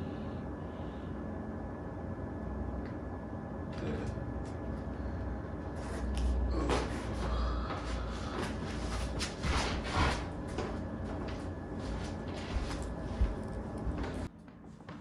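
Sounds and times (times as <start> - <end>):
low room hum: 0.0 - 15.0
low rumble of body movement: 3.8 - 14.3.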